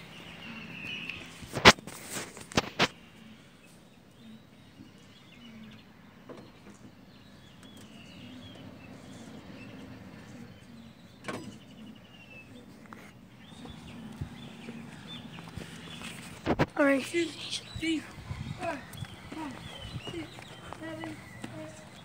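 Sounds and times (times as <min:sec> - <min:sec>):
high chirping calls: 0:07.1 - 0:22.0.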